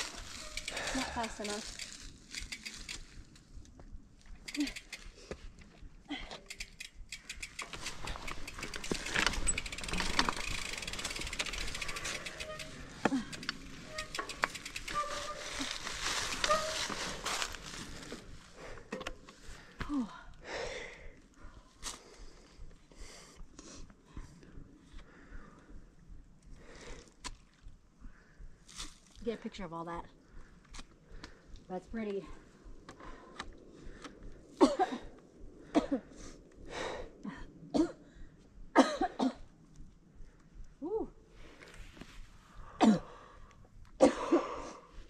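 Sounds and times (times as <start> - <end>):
bike tyre and air rushing: 0.0 - 3.4, 6.4 - 19.8
bike rattles and clicks: 0.0 - 20.2, 30.6 - 36.2
person coughing: 34.6 - 35.1, 38.8 - 39.4, 42.8 - 43.2, 44.0 - 44.6.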